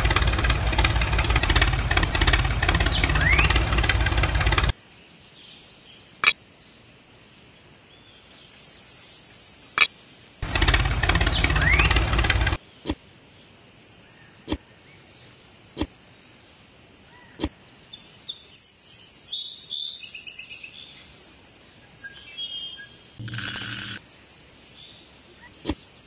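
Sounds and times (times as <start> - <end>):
sharp clicks: 0.0 - 4.7, 23.2 - 24.0
tractor engine running: 0.0 - 4.7, 10.4 - 12.6, 23.2 - 24.0.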